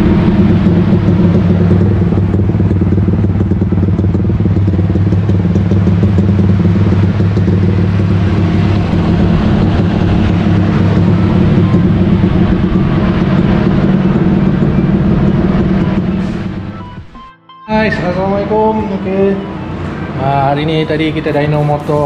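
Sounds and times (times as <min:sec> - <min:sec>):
motorcycle engine running loud: 0:00.0 - 0:17.1.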